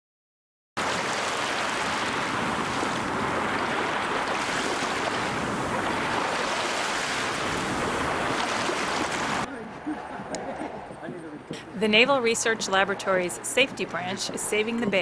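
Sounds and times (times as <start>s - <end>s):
churning water rushing and splashing: 0.8s - 10.7s.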